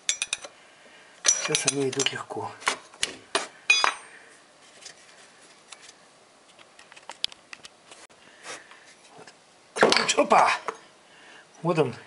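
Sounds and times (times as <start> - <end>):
metal clinks of hand tools: 0.0 - 0.5, 1.2 - 2.2.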